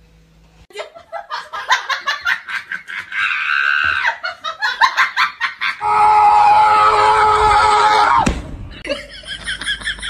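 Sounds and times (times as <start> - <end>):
person laughing: 8.7 - 10.0.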